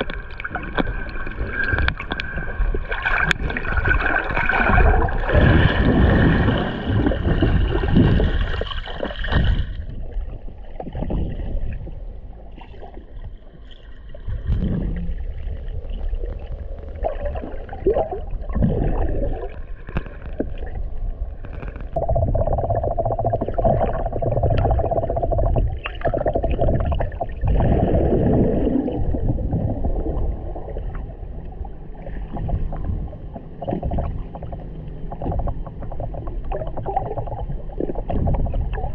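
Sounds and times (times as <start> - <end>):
water rushing underwater: 0.0 - 38.9
steady hum: 21.0 - 38.9.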